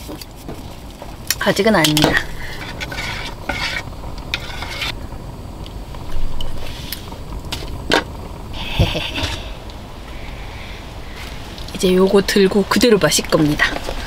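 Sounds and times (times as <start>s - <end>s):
low rumble of gas stove: 0.0s - 14.0s
metal spoon scraping pot: 1.8s - 5.0s.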